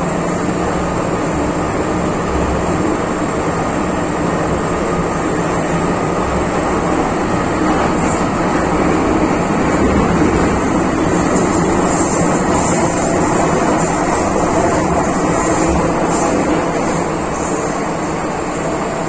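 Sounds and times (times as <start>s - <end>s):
train wheels rumbling on rail: 0.0s - 19.0s.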